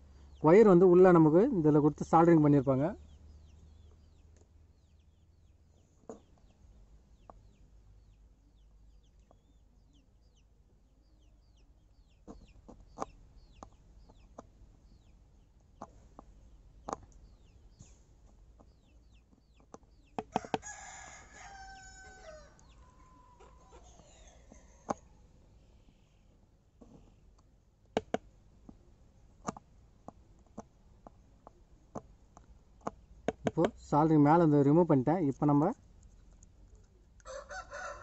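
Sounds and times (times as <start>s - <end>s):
small birds chirping: 0.0s - 38.0s
rooster crowing: 20.3s - 24.1s, 37.2s - 38.0s.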